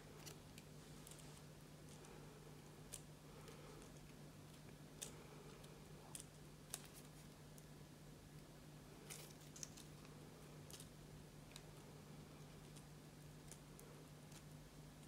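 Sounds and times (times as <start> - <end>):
low steady hum: 0.0 - 15.0
paper crinkling and ticking: 9.0 - 10.9.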